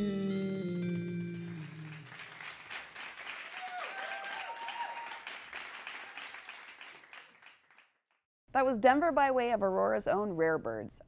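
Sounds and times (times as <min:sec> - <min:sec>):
audience applauding: 0:01.1 - 0:08.0
person whooping: 0:03.5 - 0:05.2.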